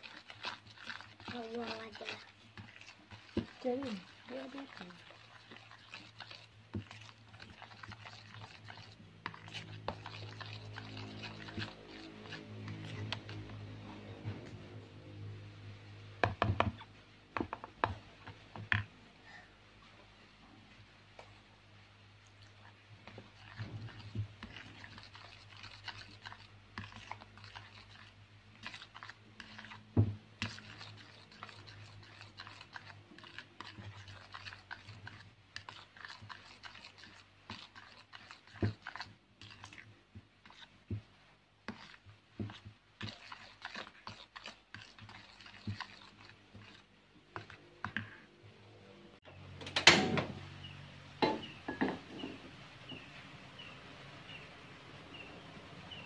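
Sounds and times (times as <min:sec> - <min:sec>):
spatula scraping batter in bowl: 0:00.0 - 0:15.4, 0:16.0 - 0:19.0, 0:22.2 - 0:48.6
frying pan set on stove: 0:49.6 - 0:50.5.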